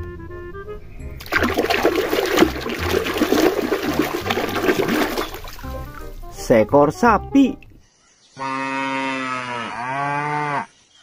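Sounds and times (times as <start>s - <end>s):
water sloshing and splashing: 1.2s - 6.3s.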